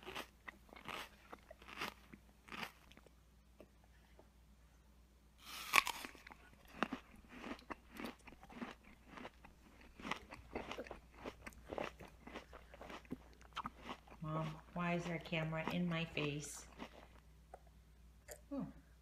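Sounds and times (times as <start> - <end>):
toddler chewing wetly: 5.8 - 15.8.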